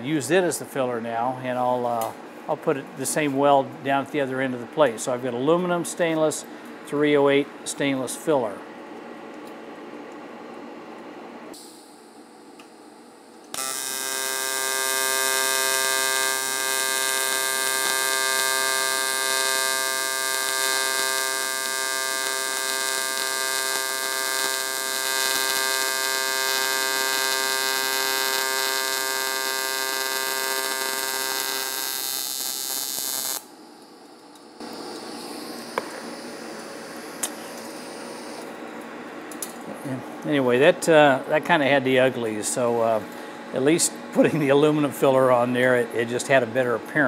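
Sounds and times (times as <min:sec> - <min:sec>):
welding arc buzzing: 0:11.5 - 0:38.6.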